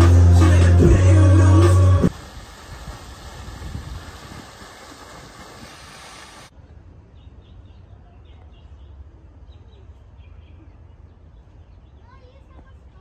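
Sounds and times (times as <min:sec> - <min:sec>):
fountain splashing into pool: 0:01.0 - 0:06.5
small birds chirping: 0:07.0 - 0:13.0.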